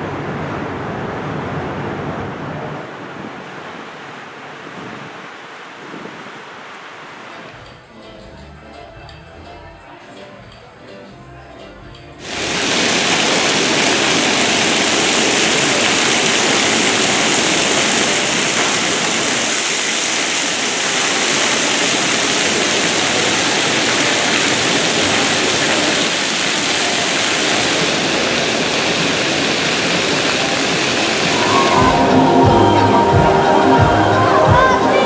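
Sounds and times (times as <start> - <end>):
water rushing from slides: 12.2 - 35.0.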